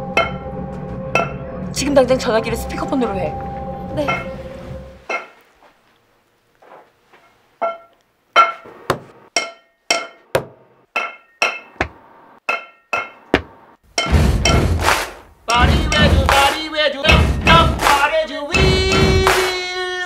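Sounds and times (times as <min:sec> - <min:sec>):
metal pipe clanging: 0:01.1 - 0:01.4, 0:04.0 - 0:04.3, 0:07.2 - 0:11.9, 0:12.5 - 0:14.8
loud music: 0:14.0 - 0:19.9.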